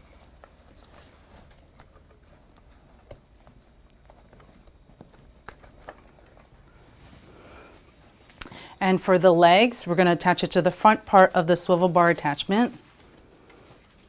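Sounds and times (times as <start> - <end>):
rustling of sling straps: 0.0 - 8.4, 11.2 - 14.0.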